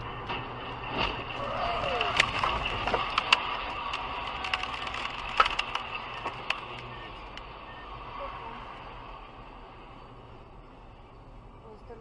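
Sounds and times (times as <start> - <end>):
road noise inside car: 0.0 - 12.0
debris cracking and clattering: 0.2 - 6.8.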